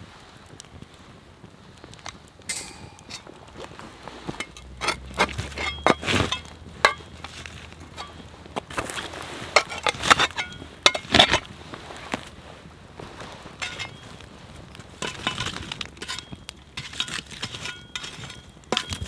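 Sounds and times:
campfire crackling: 0:00.0 - 0:19.0
metal shovel scraping and clinking: 0:02.5 - 0:12.2, 0:13.6 - 0:19.0.

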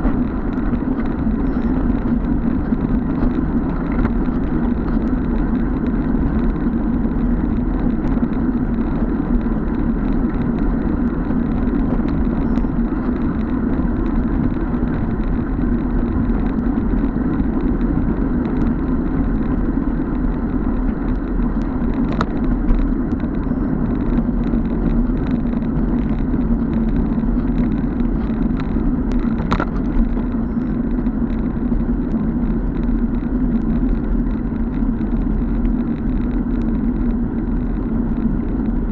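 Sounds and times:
tyre and road rumble: 0:00.0 - 0:38.9
wind rush on microphone: 0:00.0 - 0:38.9.

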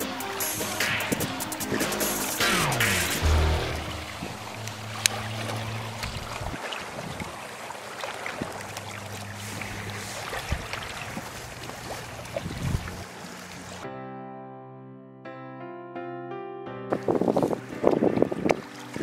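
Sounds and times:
lapping water: 0:03.8 - 0:13.8.

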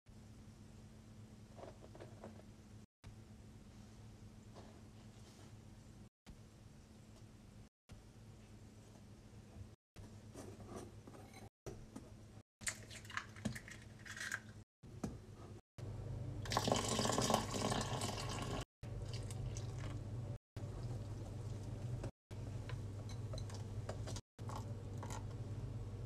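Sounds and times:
liquid pouring into bowl: 0:16.5 - 0:20.0.

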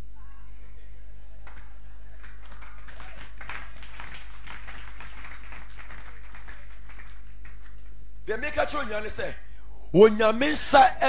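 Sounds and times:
low electrical hum: 0:00.0 - 0:11.0
congregation clapping: 0:01.4 - 0:08.8.

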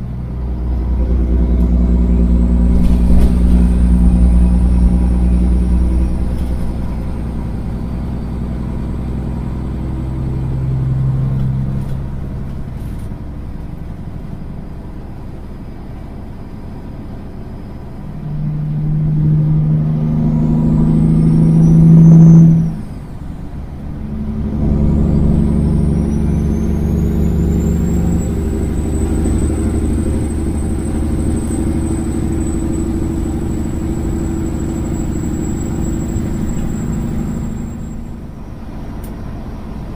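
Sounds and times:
truck diesel engine accelerating: 0:00.0 - 0:39.9
high whistle: 0:20.4 - 0:23.1, 0:25.0 - 0:38.6.

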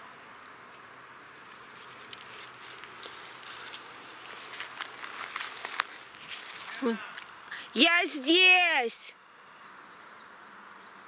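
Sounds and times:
insects buzzing: 0:00.0 - 0:11.0
light clicks and rustles: 0:01.5 - 0:07.6.

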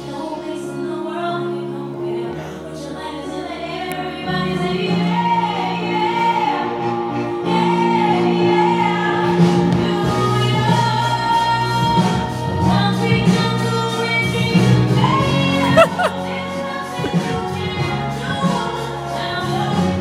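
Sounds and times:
musical accompaniment: 0:00.0 - 0:20.0.

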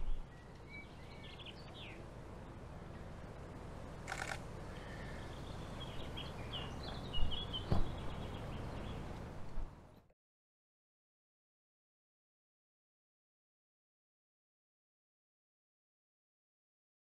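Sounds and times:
small birds chirping and singing: 0:00.0 - 0:03.2, 0:04.6 - 0:10.1
low outdoor rumble: 0:00.0 - 0:10.1.

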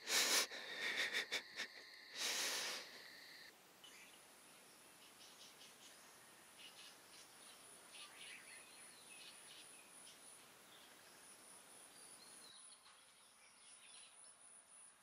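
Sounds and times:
light hiss: 0:00.0 - 0:12.4
insect drone: 0:00.0 - 0:12.6
bird chirps: 0:03.0 - 0:11.1.

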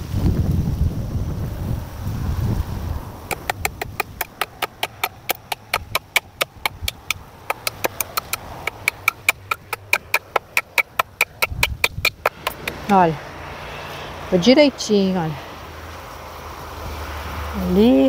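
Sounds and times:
wind buffeting microphone: 0:00.0 - 0:13.3.

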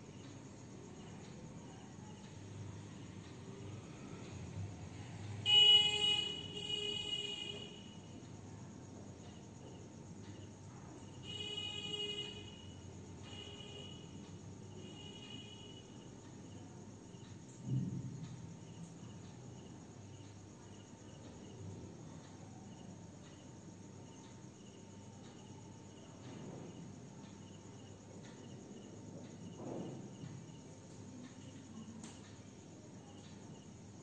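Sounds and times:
cricket chirping: 0:00.0 - 0:34.0
faint steady hum: 0:00.0 - 0:34.0
thump: 0:17.6 - 0:18.4, 0:29.5 - 0:30.1.

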